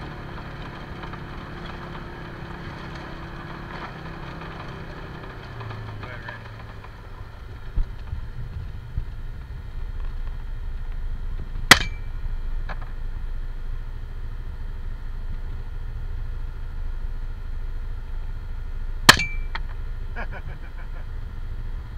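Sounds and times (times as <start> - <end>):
utility vehicle engine idling: 0.0 - 21.9
sharp crack with metallic ring: 11.7 - 12.2, 19.0 - 19.8.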